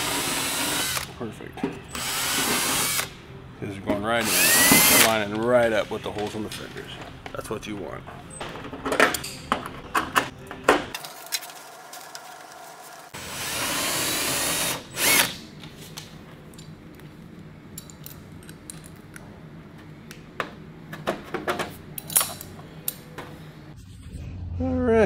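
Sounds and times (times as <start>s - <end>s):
cordless drill boring: 0.0s - 1.1s, 2.0s - 3.1s, 4.2s - 5.1s, 13.2s - 15.3s.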